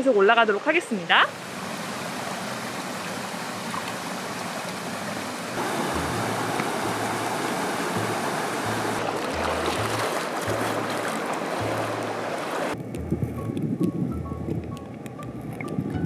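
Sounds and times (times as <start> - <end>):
stream flowing: 0.0 - 13.0
music with low bass line: 5.8 - 7.3, 8.0 - 11.0, 11.6 - 12.2, 12.8 - 16.0.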